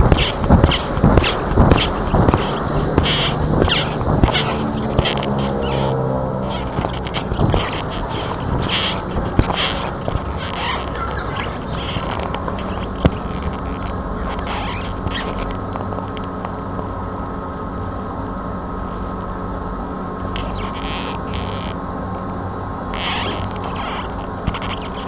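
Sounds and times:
camera rustling and scraping: 0:00.0 - 0:16.4, 0:23.0 - 0:25.0
steady electrical hum: 0:00.0 - 0:25.0.

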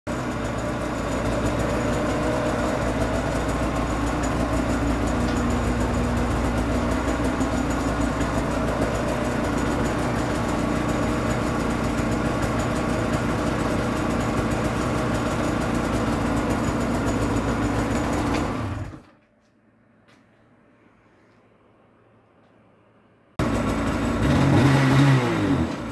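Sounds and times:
snowmobile engine idling: 0:00.1 - 0:19.0, 0:23.4 - 0:25.9.

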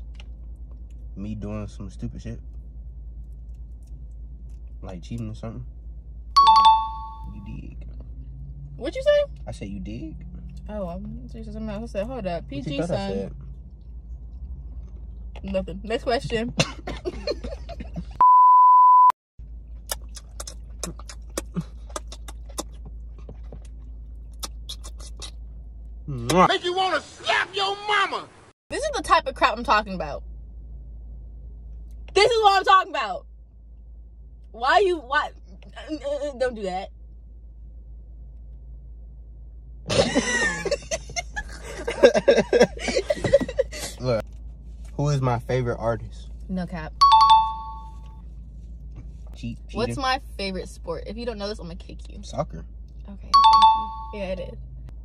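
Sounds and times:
car interior hum: 0:00.0 - 0:55.0
censor bleep tone: 0:06.4 - 0:07.4, 0:18.2 - 0:19.2, 0:53.3 - 0:54.2
woman laughing: 0:16.4 - 0:18.2, 0:39.9 - 0:44.0
man laughing: 0:16.6 - 0:18.2, 0:39.9 - 0:44.2
eating clicks and smacks: 0:19.8 - 0:25.4.

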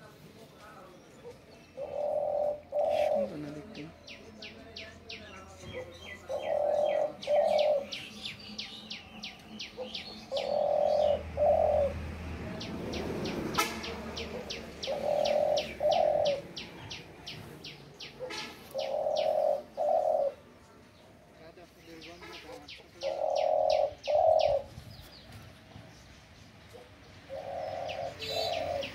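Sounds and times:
dove cooing: 0:01.7 - 0:04.0, 0:05.8 - 0:08.2, 0:09.6 - 0:12.2, 0:14.2 - 0:17.4, 0:18.0 - 0:20.6, 0:23.0 - 0:24.8, 0:26.7 - 0:28.9.

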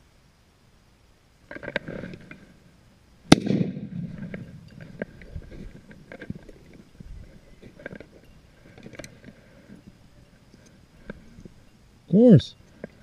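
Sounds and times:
gunshot: 0:03.3 - 0:04.1
rustling and ticking: 0:04.0 - 0:11.9.

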